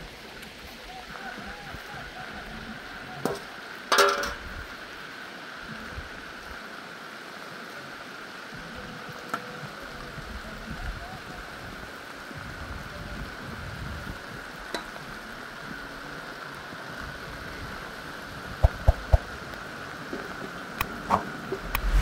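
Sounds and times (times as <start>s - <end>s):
steady even noise: 18.6s - 19.3s, 21.4s - 22.0s.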